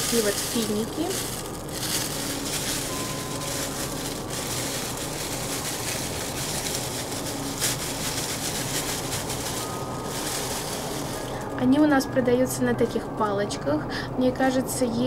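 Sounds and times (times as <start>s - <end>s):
plastic bag rustling: 0.0s - 11.8s.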